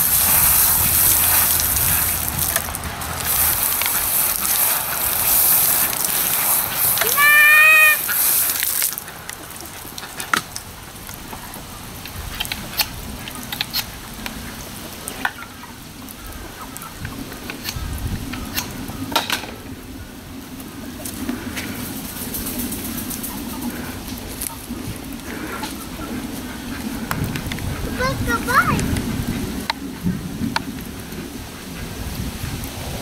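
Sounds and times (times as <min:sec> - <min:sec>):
hose nozzle spraying water: 0:00.0 - 0:09.0.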